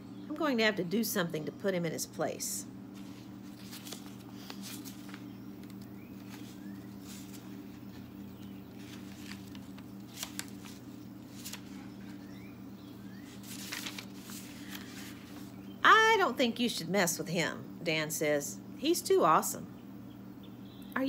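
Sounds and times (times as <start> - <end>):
paper rustling: 2.9 - 12.3, 13.2 - 15.6
bird chirps: 11.9 - 13.4, 19.8 - 21.0.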